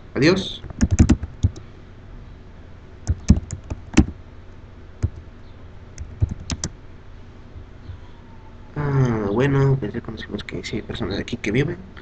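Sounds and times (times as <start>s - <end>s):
keyboard typing: 0.6s - 1.6s, 3.0s - 4.2s, 5.0s - 5.2s, 6.0s - 6.7s.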